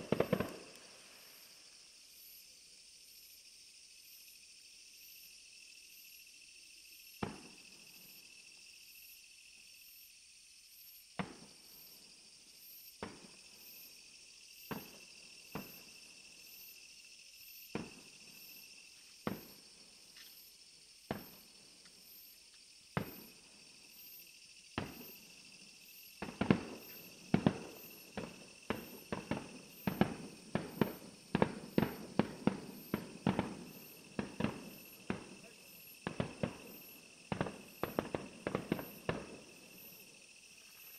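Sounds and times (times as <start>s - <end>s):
fireworks bursting: 0.0s - 1.5s, 14.6s - 15.9s, 19.2s - 19.6s, 22.9s - 23.3s, 26.2s - 40.1s
insects chirring: 0.0s - 40.9s.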